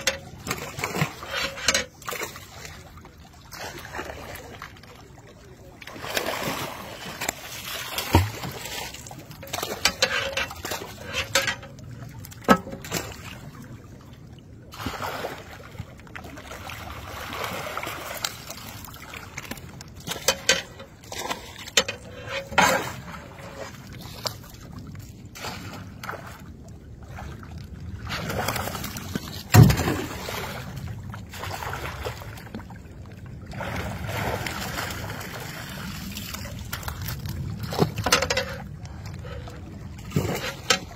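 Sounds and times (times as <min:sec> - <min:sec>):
water splashing and sloshing: 0:00.0 - 0:40.9.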